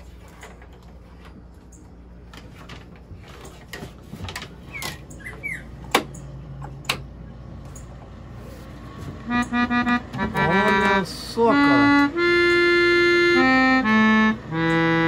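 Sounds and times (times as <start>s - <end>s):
steady low hum: 0.0s - 15.0s
short high squeaks: 4.6s - 5.8s.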